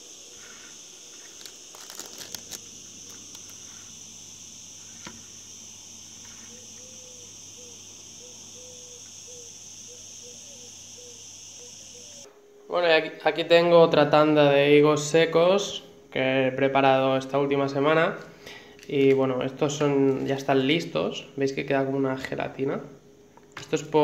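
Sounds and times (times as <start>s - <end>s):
high-pitched insect chorus: 0.0s - 24.0s.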